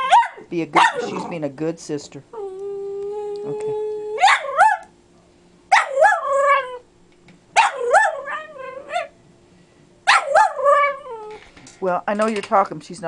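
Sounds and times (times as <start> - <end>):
dog warbling vocalizing: 0.0 - 1.4, 5.8 - 6.8, 7.6 - 9.2, 10.1 - 11.4.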